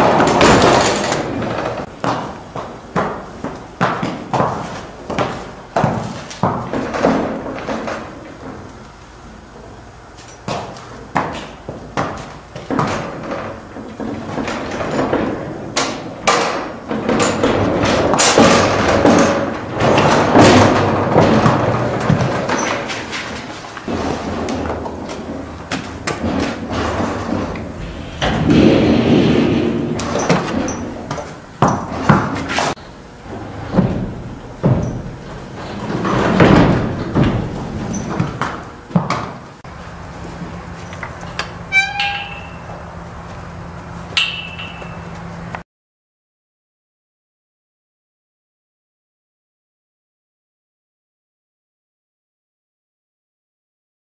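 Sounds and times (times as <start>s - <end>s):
stall door rattling and banging: 0.0s - 8.7s, 10.4s - 39.6s.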